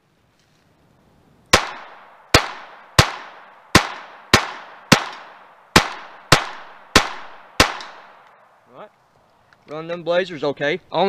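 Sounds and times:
pistol shots with echo: 0:01.5 - 0:08.3.

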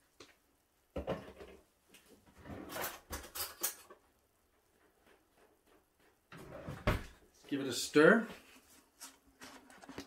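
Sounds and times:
cutlery rattling in drawer: 0:02.5 - 0:04.0.

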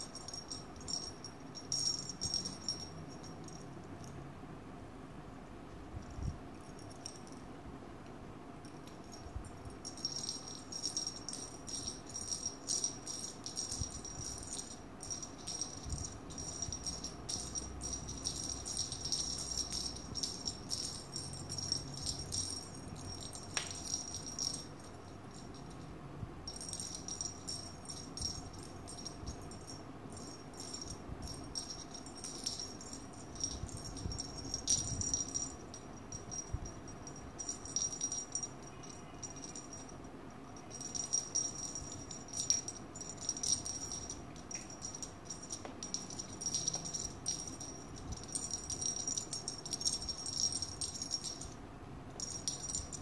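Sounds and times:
small jingle bell jingling: 0:00.0 - 0:04.2, 0:06.0 - 0:07.4, 0:08.6 - 0:51.6, 0:52.2 - 0:53.0.

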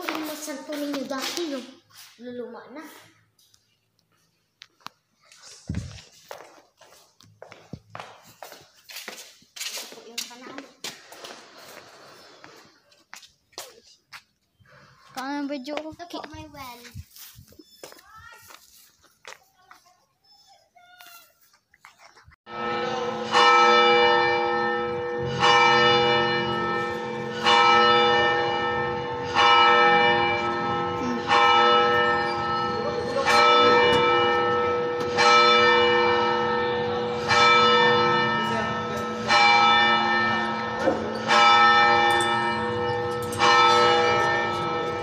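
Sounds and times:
church bell tolling: 0:22.5 - 0:45.0.

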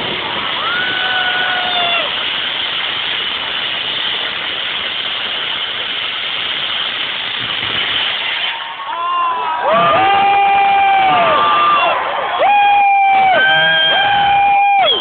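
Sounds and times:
person whooping: 0:00.6 - 0:02.1, 0:08.8 - 0:15.0
crowd din: 0:08.4 - 0:15.0.

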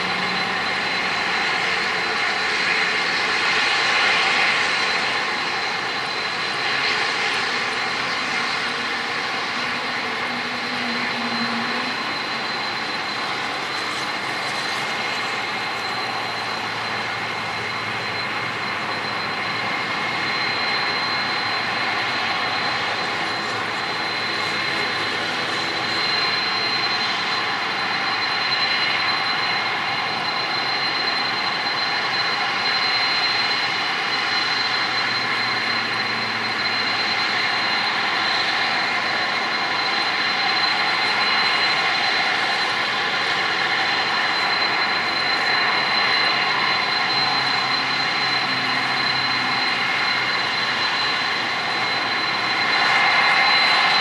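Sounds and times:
high engine whine: 0:00.0 - 0:54.0
jet engines roaring: 0:00.0 - 0:54.0.

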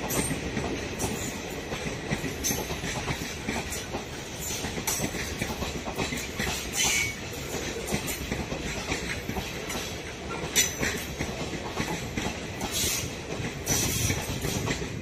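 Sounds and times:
train wheels rumbling on rail: 0:00.0 - 0:15.0
wheels clanking over rail joints: 0:00.0 - 0:15.0.

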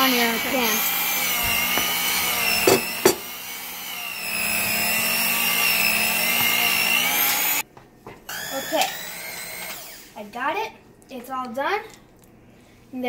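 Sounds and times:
electric hand mixer whining: 0:00.0 - 0:07.6, 0:08.3 - 0:10.2.

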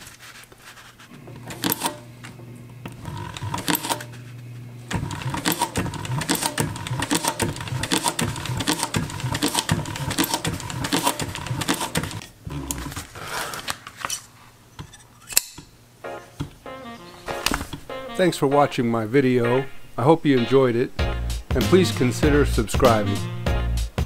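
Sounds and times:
sewing machine motor humming: 0:01.2 - 0:13.0
sewing machine stitching: 0:01.3 - 0:02.0, 0:02.8 - 0:04.2, 0:04.9 - 0:13.0.

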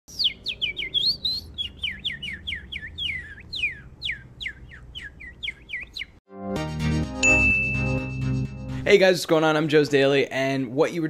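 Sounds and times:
man whistling bird chirps: 0:00.1 - 0:06.2.

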